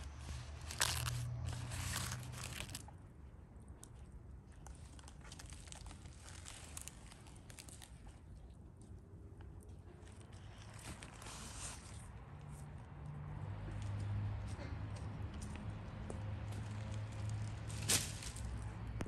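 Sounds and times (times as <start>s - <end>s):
banana leaves crinkling and rustling: 0.0s - 3.0s, 3.8s - 9.0s, 9.6s - 12.2s, 16.5s - 19.0s.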